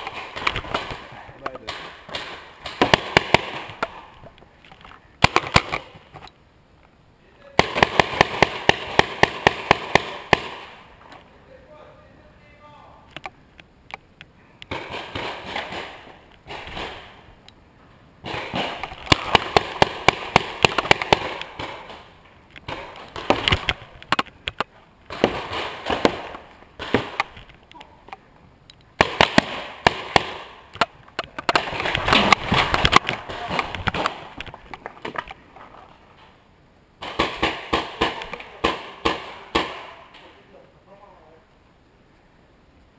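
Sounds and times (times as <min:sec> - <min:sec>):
paintball markers firing: 0:00.0 - 0:04.1, 0:05.2 - 0:06.1, 0:07.6 - 0:10.8, 0:18.2 - 0:27.4, 0:29.0 - 0:35.3
rustling: 0:00.0 - 0:07.0, 0:13.0 - 0:40.6.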